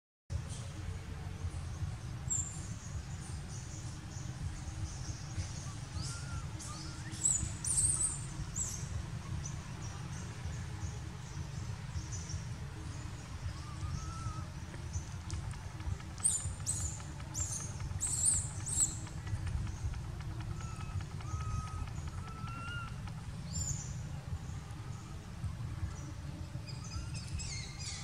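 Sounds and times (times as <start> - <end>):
low rumble: 0.3 - 28.0.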